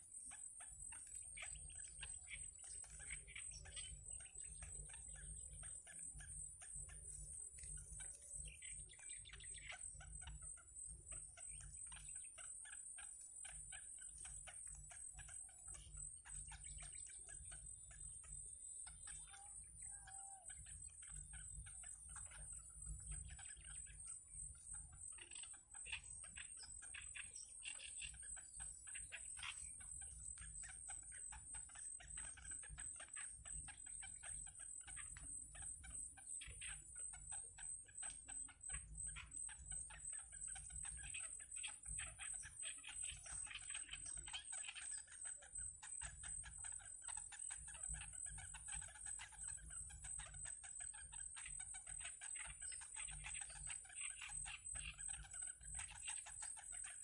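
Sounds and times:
chicks clicking chatter: 0.0 - 57.0.

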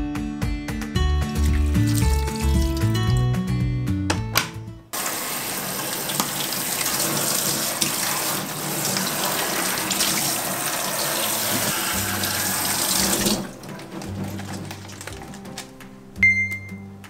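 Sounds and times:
water splashing into steel sink: 1.2 - 3.2, 5.0 - 15.9
kitchen faucet running: 1.3 - 3.2, 5.0 - 15.7.

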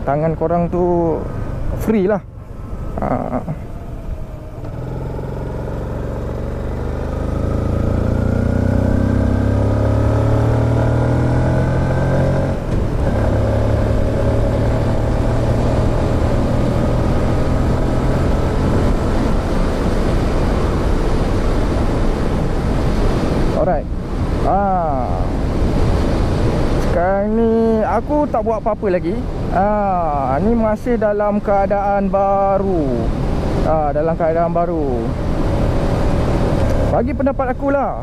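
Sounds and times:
motorcycle engine accelerating: 2.7 - 23.2.

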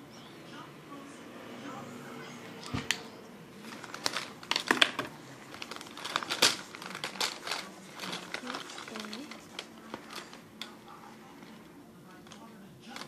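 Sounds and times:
paper rustling: 3.6 - 13.0.

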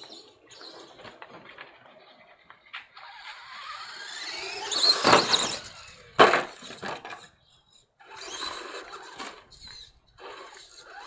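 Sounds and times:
toy truck motor whining: 0.0 - 11.0
toy truck crash landing: 3.1 - 7.3, 8.2 - 11.0.

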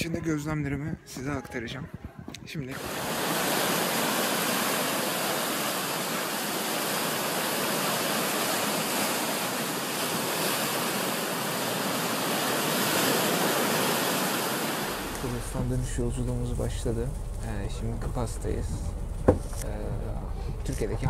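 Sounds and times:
sea waves and surf: 2.7 - 16.3.

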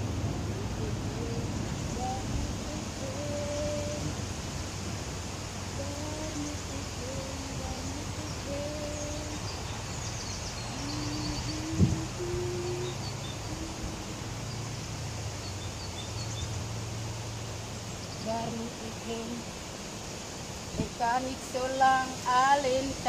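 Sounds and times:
steady low hum: 0.0 - 23.0
small birds chirping and twittering: 5.6 - 23.0.

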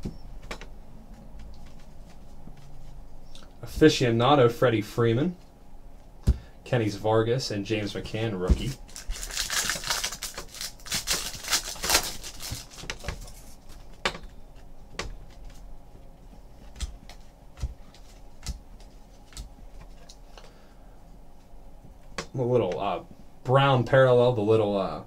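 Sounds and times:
foil wrapper crinkling and tearing: 8.7 - 13.5.

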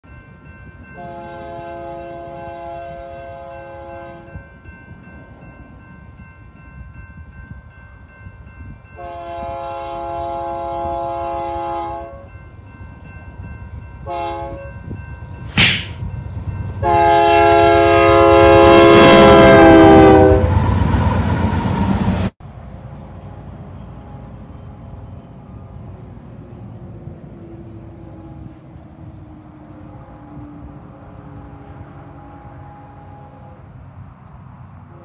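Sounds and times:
train rumble: 0.1 - 35.0
locomotive air horn blasts: 1.0 - 4.4, 9.0 - 12.3, 14.0 - 14.8, 16.8 - 20.6, 32.0 - 33.7
brief sharp noise: 15.5 - 16.0.

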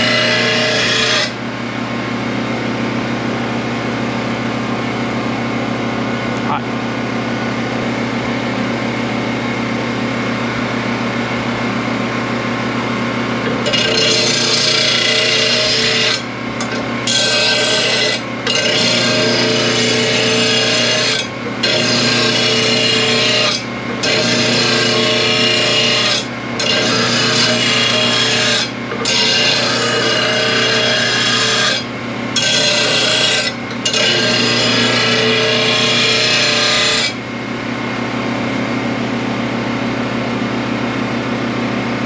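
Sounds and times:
grinder motor hum: 0.0 - 42.0
blade grinding against wheel: 13.5 - 37.2.

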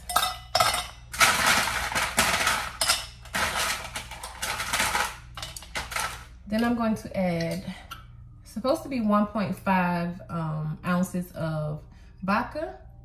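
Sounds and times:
ice cubes clattering into metal cup: 0.0 - 6.4.

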